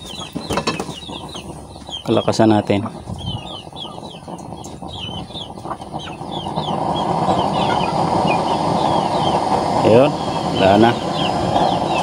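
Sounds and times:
fowl chirping: 0.0 - 9.6
burner flame rushing: 0.0 - 12.0.

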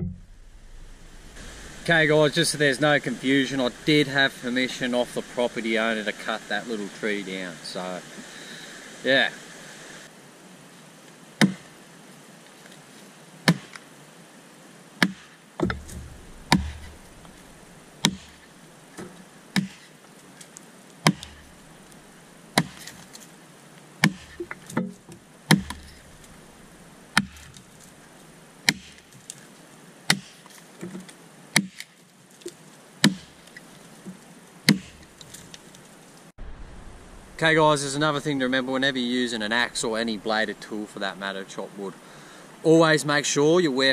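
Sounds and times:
axe chopping into log: 11.4 - 11.7, 13.5 - 13.8, 15.0 - 17.3, 18.0 - 18.4, 19.0 - 19.9, 21.0 - 21.5, 22.6 - 22.9, 24.0 - 24.9, 25.5 - 26.0, 27.2 - 27.5, 28.7 - 29.1, 30.1 - 30.4, 31.6 - 31.9, 33.0 - 33.4, 34.7 - 35.1.

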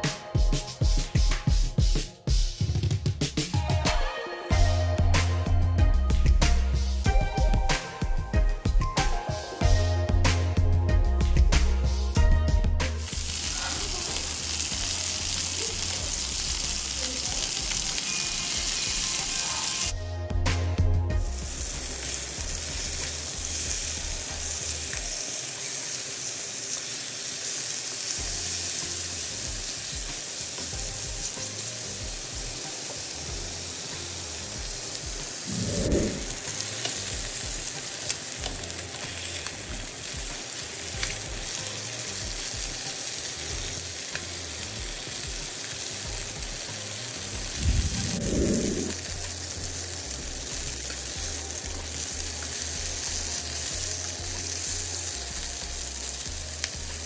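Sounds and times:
chicken sizzling in hot oil: 12.9 - 20.0, 21.1 - 57.0.

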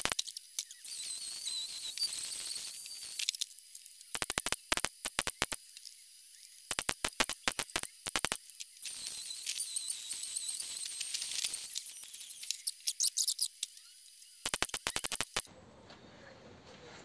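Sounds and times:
welder crackling: 0.0 - 15.5
angle grinder on steel: 8.8 - 12.8.

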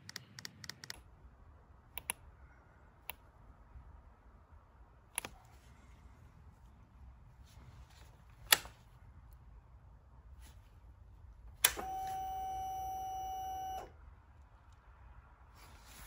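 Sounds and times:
ignition switch click: 11.6 - 13.9.

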